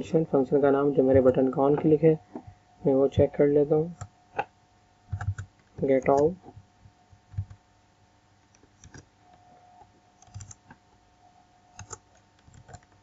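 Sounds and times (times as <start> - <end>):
faint steady hum: 0.0 - 13.0
faint keyboard keystrokes: 5.1 - 6.3, 8.4 - 9.4, 10.2 - 10.8, 11.8 - 13.0.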